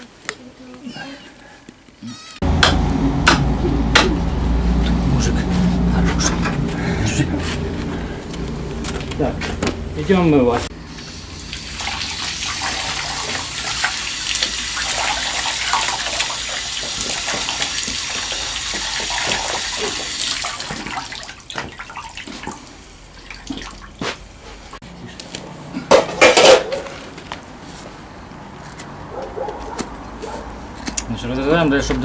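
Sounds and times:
water sloshing in metal basin: 11.2s - 24.0s.

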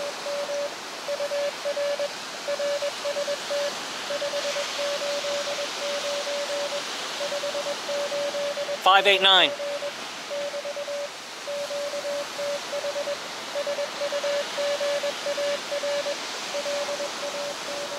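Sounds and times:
morse code tone: 0.0s - 17.9s
radio hiss: 0.0s - 17.9s.

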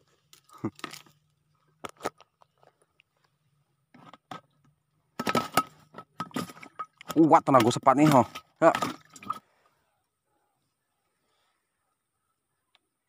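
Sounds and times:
rustles and clicks of fishing tackle: 0.0s - 4.8s.

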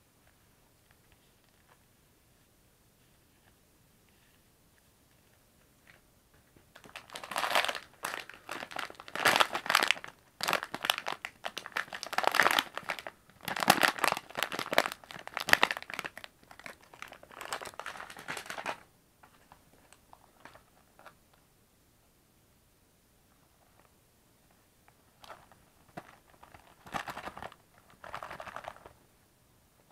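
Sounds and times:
plastic packaging crinkling: 6.7s - 21.2s, 25.2s - 29.0s.

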